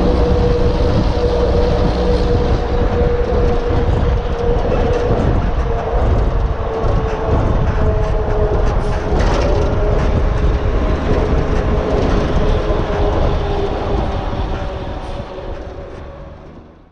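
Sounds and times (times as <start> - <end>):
rumbling vehicle noise: 0.0 - 16.9.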